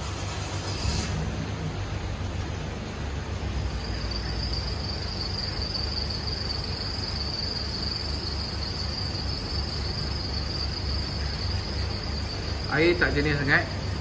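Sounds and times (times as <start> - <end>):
steady high-pitched trill: 3.6 - 14.0.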